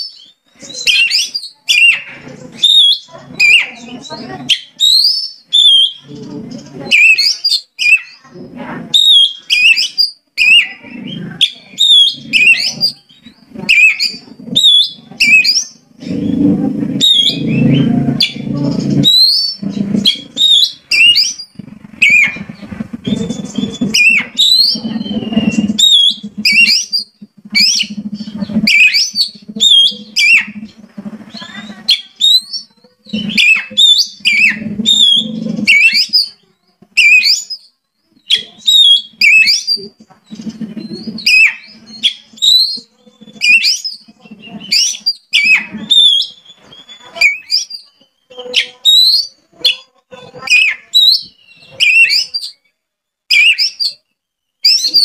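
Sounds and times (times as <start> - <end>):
bird singing whistled phrases: 0.0 - 8.2, 8.9 - 36.4, 37.0 - 52.7, 53.3 - 55.0
low hum: 15.8 - 31.9.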